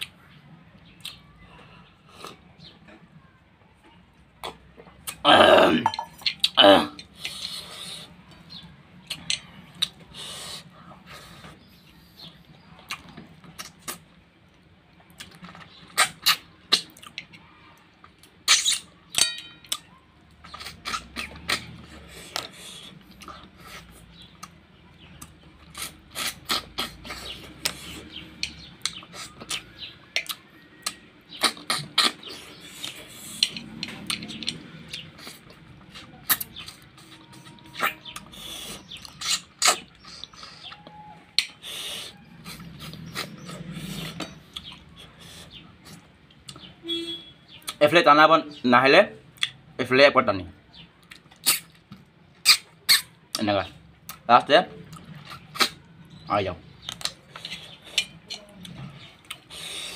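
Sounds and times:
chewing clicks: 0.8 - 1.2, 12.8 - 46.7, 49.3 - 49.6, 51.0 - 56.2, 56.8 - 59.9
wet lip smacks: 51.0 - 53.4, 54.8 - 55.9.

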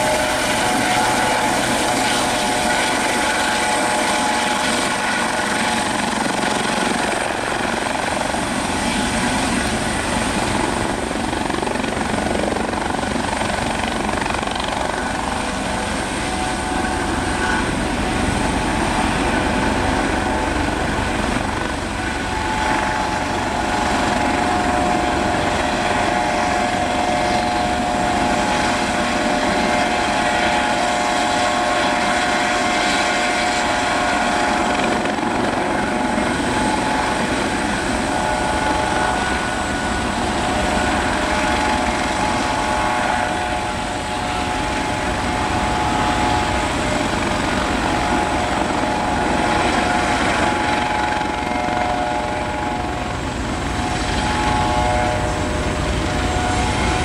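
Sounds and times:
helicopter engines and rotors running: 0.0 - 57.0
high-pitched whine: 33.3 - 57.0.

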